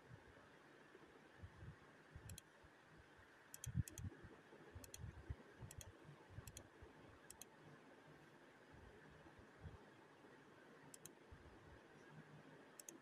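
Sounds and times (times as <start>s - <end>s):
faint sharp clicks: 2.2s - 2.5s, 3.5s - 4.1s, 4.8s - 5.1s, 5.7s - 6.7s, 7.3s - 7.6s, 10.9s - 11.2s, 12.8s - 13.0s.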